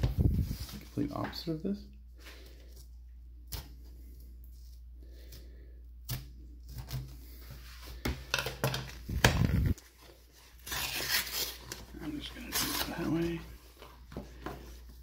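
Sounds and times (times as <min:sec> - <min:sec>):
paper crinkling and tearing: 0:09.2 - 0:13.5.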